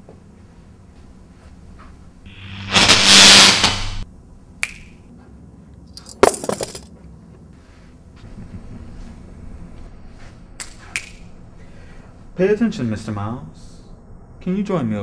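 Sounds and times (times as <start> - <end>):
glass crash: 2.3 - 4.0.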